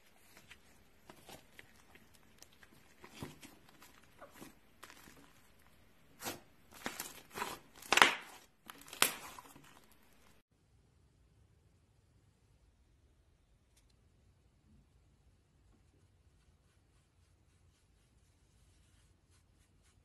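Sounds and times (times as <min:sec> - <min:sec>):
slime squelching and popping: 0:00.2 - 0:10.4.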